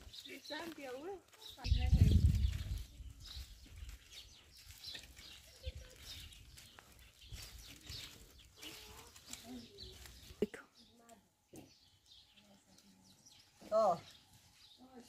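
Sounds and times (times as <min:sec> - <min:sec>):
footsteps on gravel path: 0:00.0 - 0:10.6
dry branches rustling: 0:00.0 - 0:15.0.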